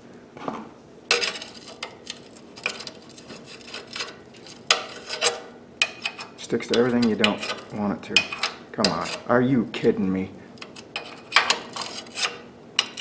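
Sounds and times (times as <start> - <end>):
screwdriver clinking and scraping metal: 1.1 - 9.3, 10.6 - 13.0.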